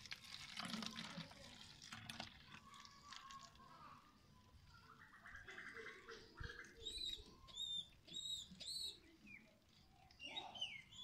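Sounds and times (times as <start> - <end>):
water gurgling into plastic bottle: 0.0 - 3.8
bird chirps: 4.9 - 11.0.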